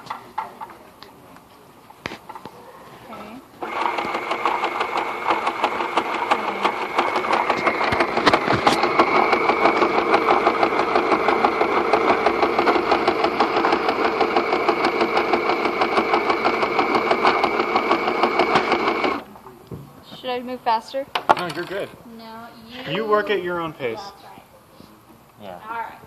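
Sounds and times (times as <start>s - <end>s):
sewing machine stitching: 3.6s - 19.2s.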